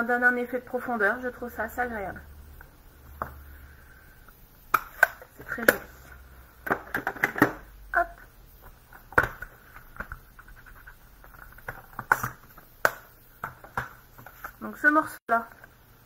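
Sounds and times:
stamping supplies clicking and tapping: 8.6s - 14.6s.

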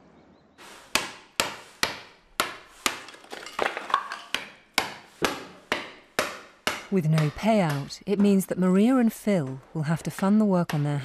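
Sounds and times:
hammer striking brick wall: 0.8s - 8.5s.

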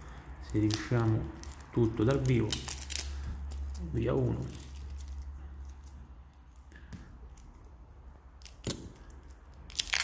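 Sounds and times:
fingers picking at plastic film: 0.4s - 5.9s.

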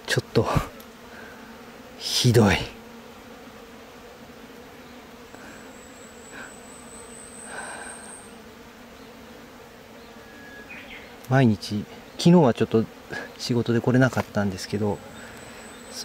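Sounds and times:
flies buzzing: 0.0s - 16.0s
thin high whine: 5.4s - 8.4s.

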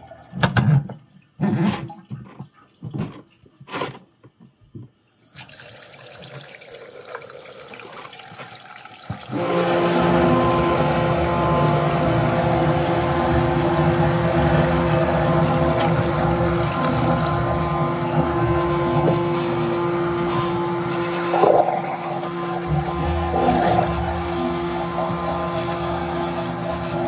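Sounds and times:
water gurgling in sink drain: 0.0s - 4.3s, 5.3s - 27.0s
high-pressure drain jetting washer: 9.1s - 27.0s.

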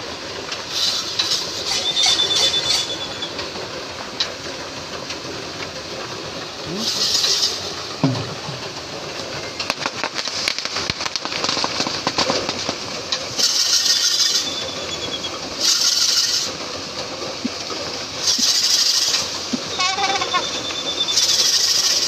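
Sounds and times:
fast rattle of clicks: 3.3s - 14.1s
bursts of hissing noise: 6.4s - 14.9s, 15.5s - 22.0s
rumbling clatter of hooves and frame: 7.2s - 13.4s.

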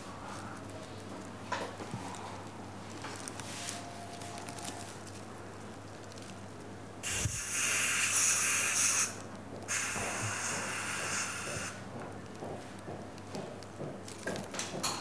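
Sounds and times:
dental equipment hissing: 7.0s - 11.8s.

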